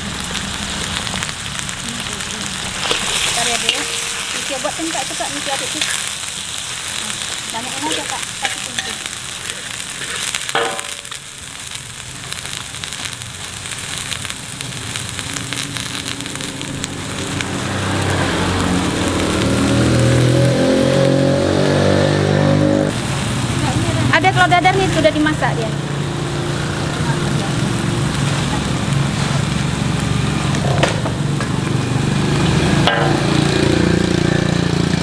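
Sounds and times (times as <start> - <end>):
food sizzling in a wok: 0.0 - 35.0
metal spatula knocking on pan: 10.6 - 11.0.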